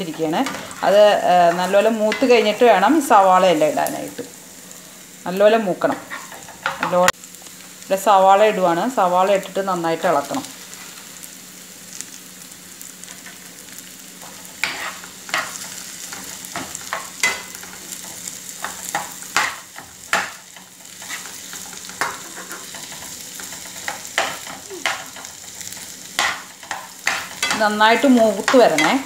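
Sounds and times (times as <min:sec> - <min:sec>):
spatula scraping pan: 0:00.0 - 0:02.7, 0:05.9 - 0:07.0, 0:14.2 - 0:29.0
onions sizzling in hot oil: 0:00.0 - 0:29.0.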